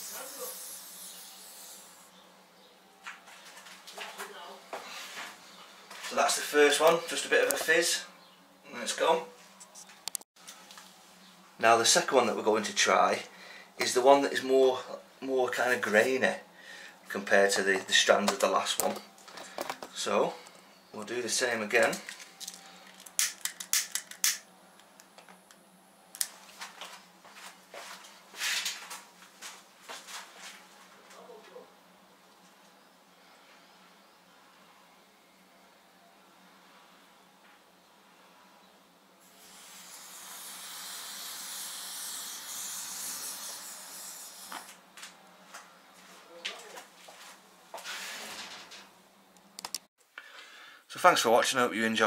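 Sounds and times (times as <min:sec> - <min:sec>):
burning powder hiss: 0:00.0 - 0:02.2, 0:39.2 - 0:44.8.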